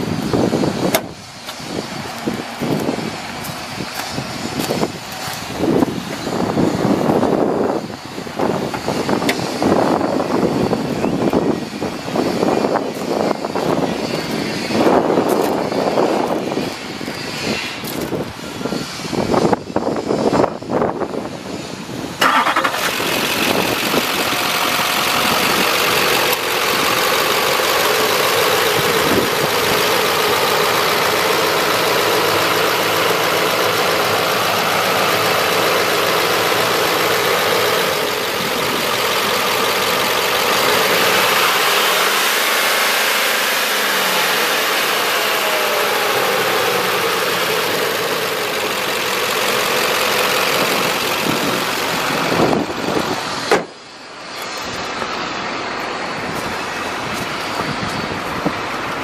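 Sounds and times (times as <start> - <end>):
wide even hiss: 0.0 - 59.0
engine idling: 22.2 - 55.2.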